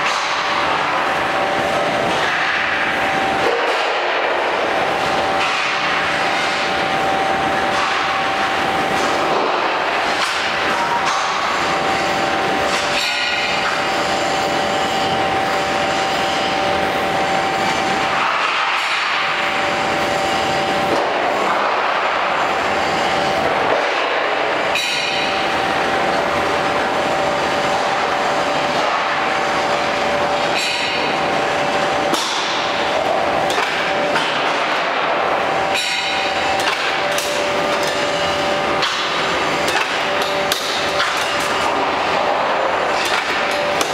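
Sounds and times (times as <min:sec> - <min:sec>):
high machine whine: 0:00.0 - 0:43.9
punching machine running: 0:00.0 - 0:43.9
sharp metallic clanks: 0:24.7 - 0:25.4, 0:35.7 - 0:38.2.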